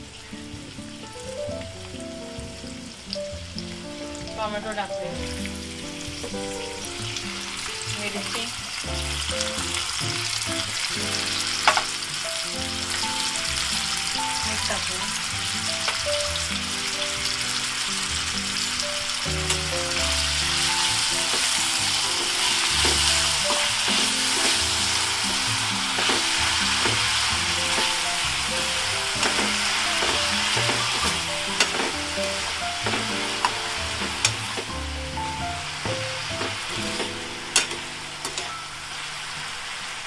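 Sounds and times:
vegetables sizzling in hot oil: 0:00.0 - 0:40.0.

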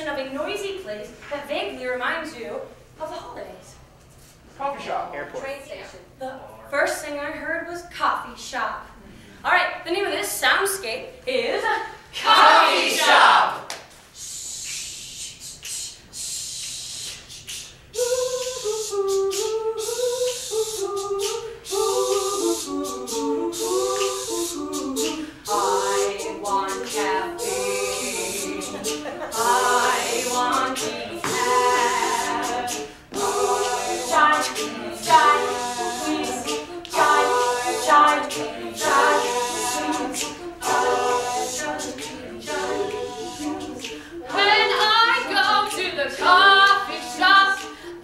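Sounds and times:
group singing a cappella: 0:11.7 - 0:48.0
short hissing sounds: 0:14.0 - 0:18.9.

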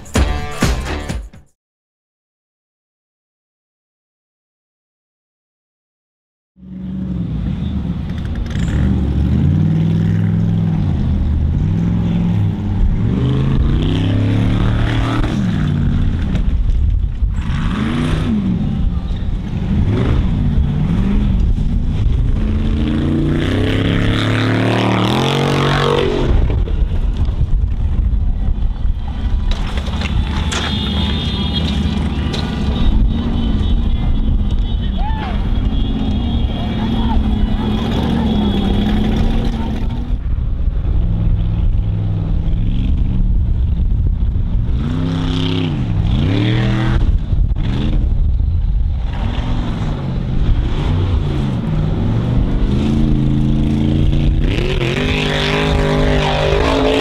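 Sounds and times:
buggy engine revving hard: 0:08.5 - 0:16.4, 0:17.3 - 0:18.9, 0:19.6 - 0:26.6, 0:35.5 - 0:40.1, 0:44.6 - 0:48.2, 0:49.0 - 0:57.0.

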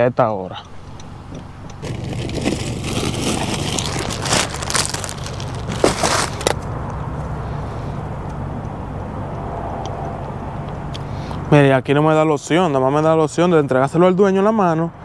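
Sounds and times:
car engine idling: 0:00.6 - 0:08.8
plastic mailer crinkling: 0:00.8 - 0:06.6.

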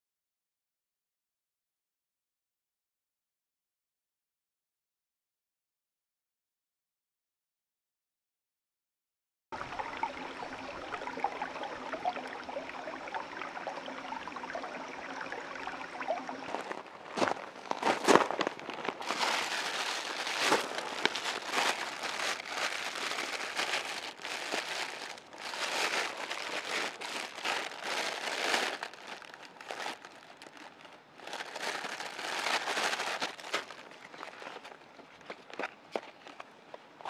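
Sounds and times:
crinkling and rustling: 0:16.4 - 0:37.0.

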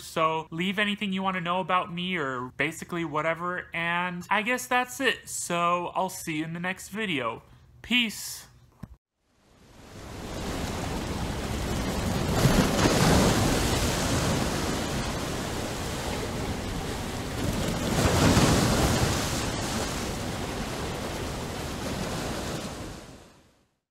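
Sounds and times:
ocean waves washing: 0:09.3 - 0:23.5.

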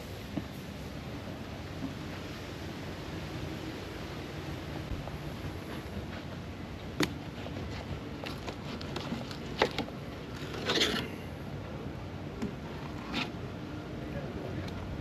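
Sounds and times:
knife blade scraping board: 0:10.4 - 0:11.2.

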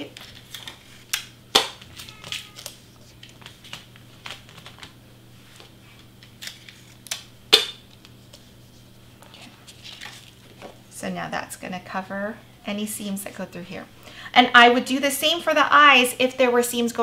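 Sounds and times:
cardstock rustling: 0:00.0 - 0:05.0, 0:08.0 - 0:10.8.

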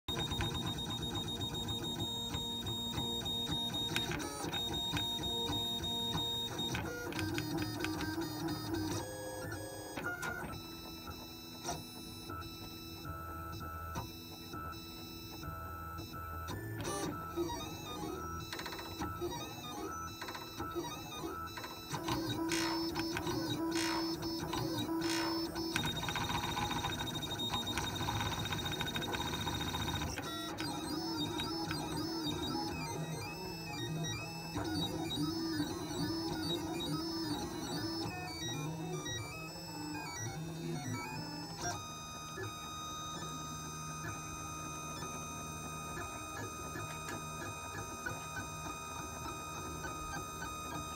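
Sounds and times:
stepper motors whining: 0:16.8 - 0:43.4.

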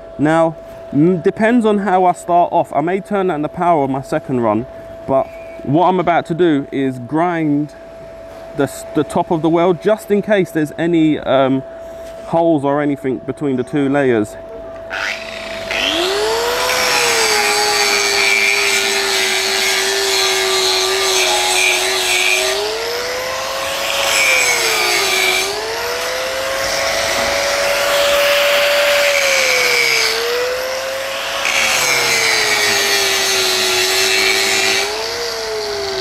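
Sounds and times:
angle grinder grinding metal: 0:14.9 - 0:36.0.

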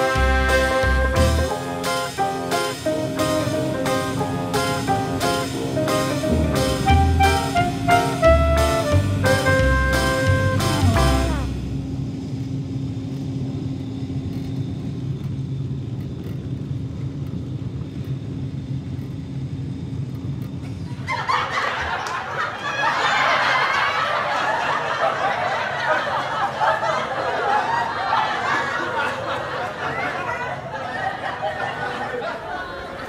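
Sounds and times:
train rumble inside carriage: 0:02.2 - 0:21.2.

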